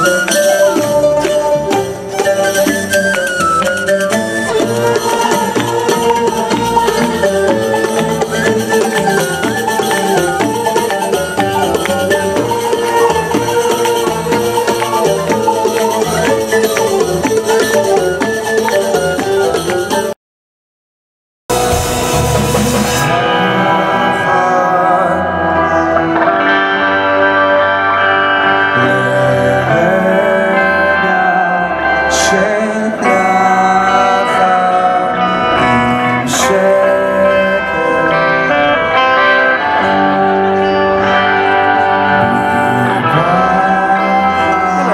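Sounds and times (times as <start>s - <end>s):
frame drum and hand percussion: 0.0s - 20.2s
guitar: 0.0s - 20.2s, 21.5s - 44.9s
live band music over loudspeakers: 0.0s - 20.2s, 21.5s - 44.9s
person singing: 0.0s - 20.2s, 21.6s - 27.1s, 28.6s - 44.9s
plucked oud: 0.0s - 20.2s.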